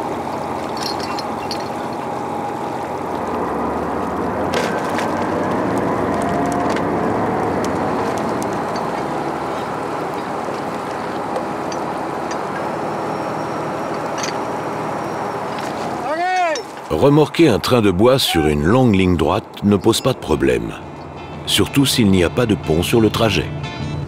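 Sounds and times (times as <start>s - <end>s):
water churning: 0.0s - 21.0s
tugboat engine running: 0.0s - 24.0s
heavy chain clinking: 0.7s - 2.0s, 13.9s - 14.6s, 16.1s - 16.9s.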